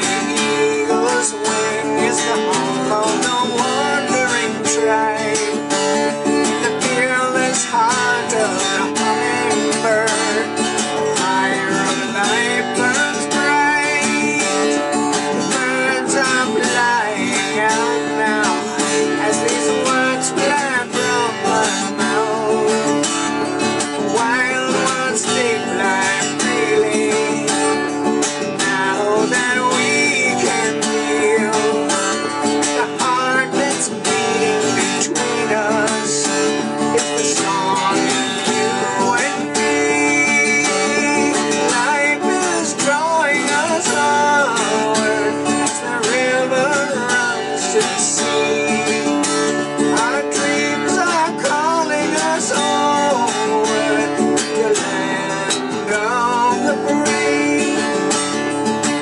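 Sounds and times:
acoustic guitar playing: 0.0 - 59.0.

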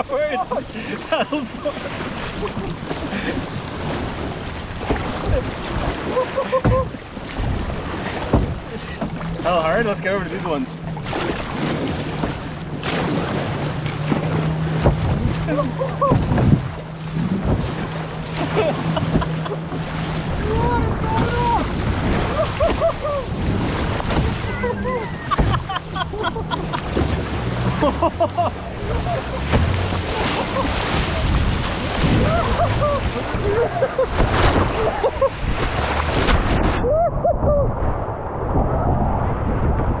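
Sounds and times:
rushing choppy water: 0.0 - 40.0
wind buffeting microphone: 1.6 - 40.0
low thumps: 6.6 - 36.8.

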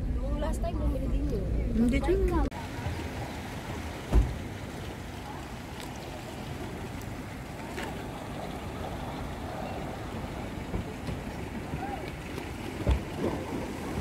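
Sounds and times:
choppy water against seawall: 0.0 - 14.0
faint voices: 0.0 - 14.0
wind: 0.0 - 14.0
low thump: 4.1 - 4.4.

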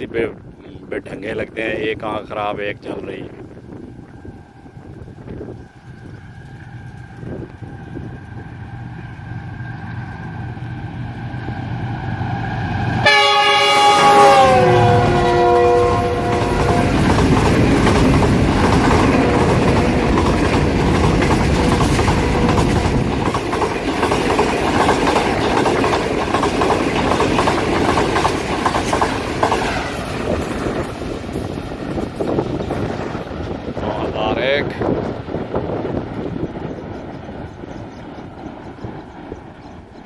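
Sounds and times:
train horn: 12.9 - 17.2
train wheels clattering over rail joints: 16.3 - 33.8.

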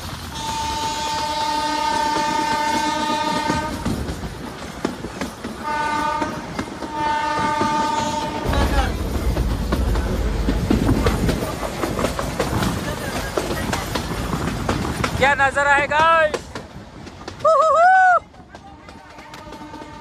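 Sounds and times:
train running rumble: 0.0 - 20.0
wheels clicking on rails: 0.0 - 20.0
train horn blasts: 0.3 - 4.0, 5.6 - 8.9, 18.7 - 20.0.

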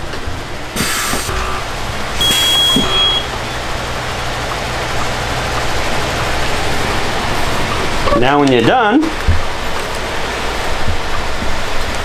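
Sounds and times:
compressed air hisses: 0.8 - 1.3
high beep from press: 2.2 - 3.4.

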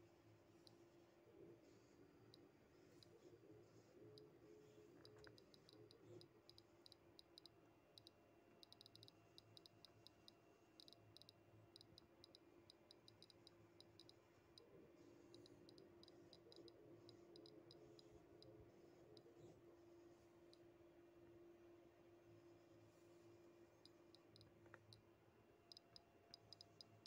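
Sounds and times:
faint steady hum: 0.0 - 27.0
geiger counter clicking: 5.0 - 14.2, 15.3 - 18.5, 25.7 - 27.0.

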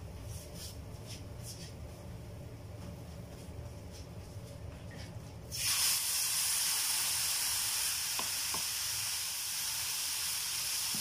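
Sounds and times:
water sizzling in a hot pan: 5.5 - 11.0.

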